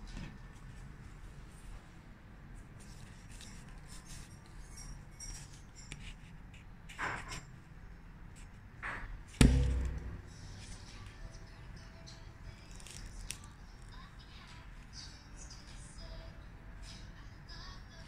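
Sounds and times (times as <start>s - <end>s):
sharp knock: 9.4s - 10.7s
sticker cards rustling: 12.6s - 13.9s.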